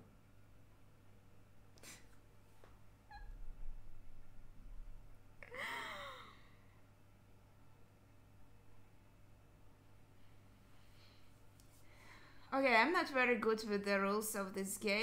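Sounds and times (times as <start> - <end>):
woman stifling laughter: 5.4 - 6.5.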